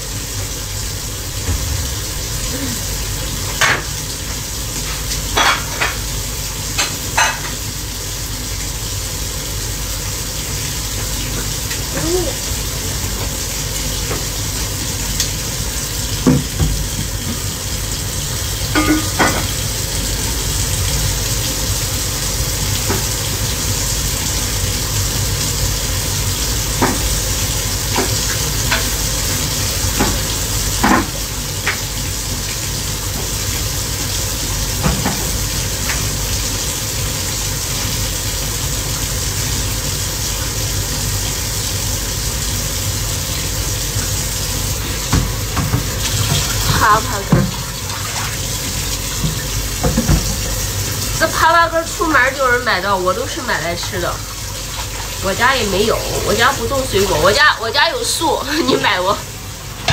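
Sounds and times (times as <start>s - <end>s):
food sizzling in a wok: 0.0s - 59.9s
utensil clanking against pan: 18.7s - 19.6s.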